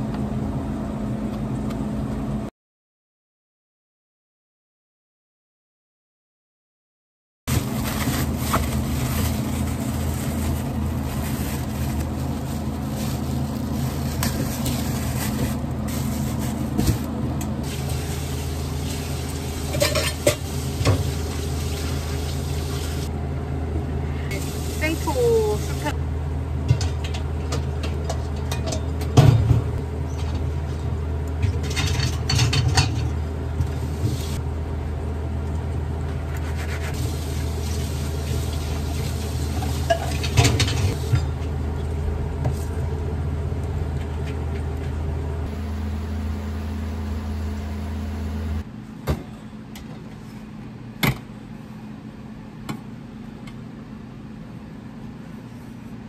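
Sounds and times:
steady low hum: 39.9s - 56.0s.

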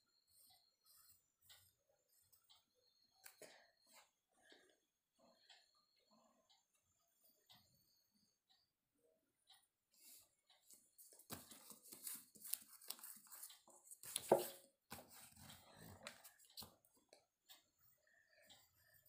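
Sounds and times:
paper rustling: 11.0s - 16.2s.

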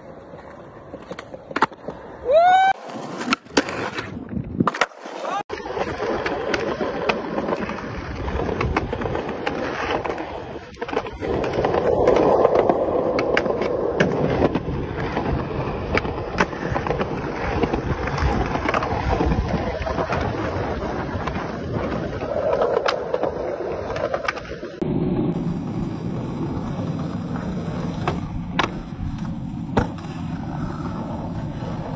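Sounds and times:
skateboard wheels rolling: 0.0s - 31.9s
skateboard deck clacks: 5.6s - 24.8s, 27.0s - 30.2s.

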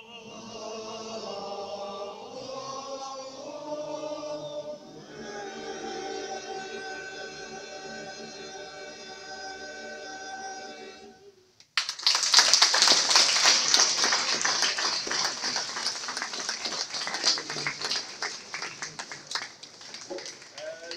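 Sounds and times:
male choir singing chord: 0.0s - 11.3s
audience applause: 11.8s - 20.9s.

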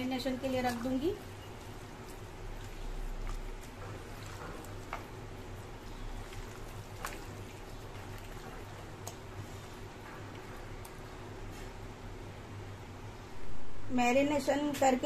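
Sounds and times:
hands squishing marinade: 0.0s - 11.8s.

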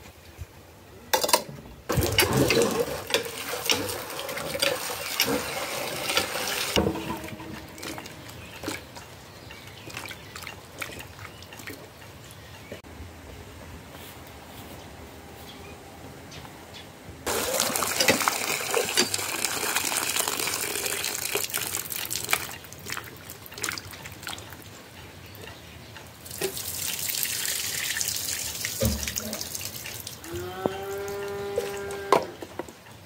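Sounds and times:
water gushing onto concrete: 1.9s - 8.1s, 17.3s - 24.5s, 26.2s - 30.2s
splashes in a pot: 17.3s - 24.6s, 26.2s - 30.2s.

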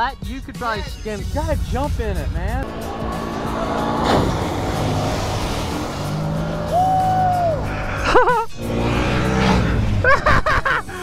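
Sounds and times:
quad engine running hard: 2.6s - 10.3s
person shouting: 6.7s - 7.6s
person yelling: 6.7s - 7.6s.

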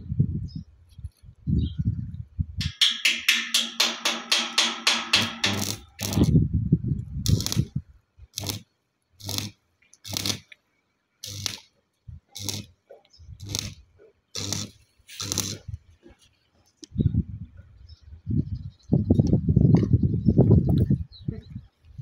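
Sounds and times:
arc welding crackle and buzz: 4.6s - 6.3s, 7.3s - 7.7s, 8.4s - 8.6s, 9.2s - 10.5s, 11.2s - 11.7s, 12.4s - 12.7s, 13.4s - 13.8s, 14.4s - 15.7s.

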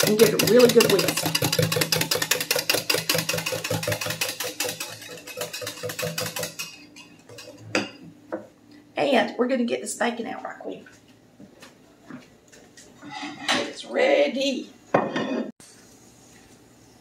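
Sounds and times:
whisk clattering in glass: 0.0s - 7.9s.

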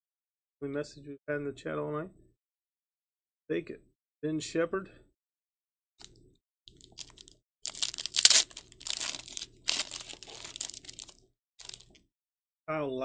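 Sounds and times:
foil wrapper crinkling and tearing: 6.7s - 12.0s.

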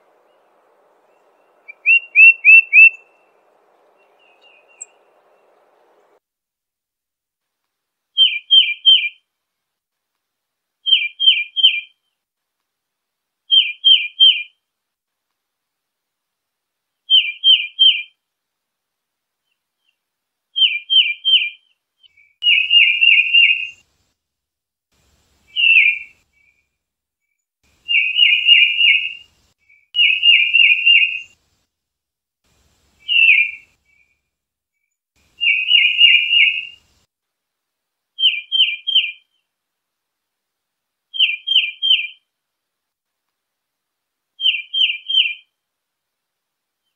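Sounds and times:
titmouse singing: 1.3s - 3.2s, 41.2s - 42.2s.

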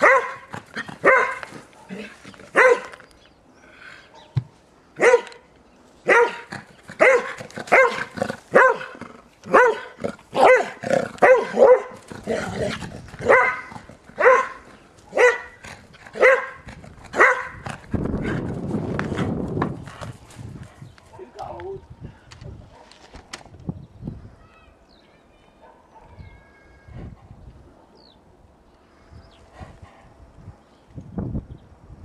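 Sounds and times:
dog barking: 0.0s - 3.0s, 5.0s - 5.4s, 6.0s - 12.0s, 13.2s - 15.6s, 16.2s - 17.6s, 25.6s - 26.3s.

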